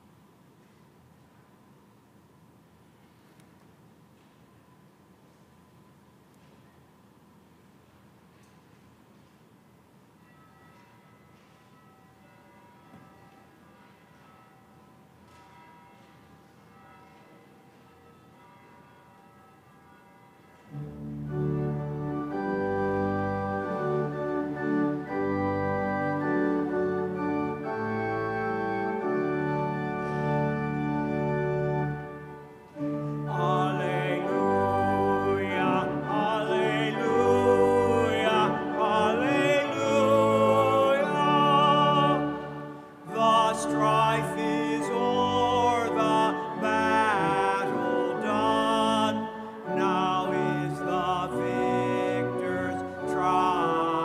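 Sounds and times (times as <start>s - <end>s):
church organ playing a hymn: 10.2s - 54.0s
people singing: 33.2s - 54.0s.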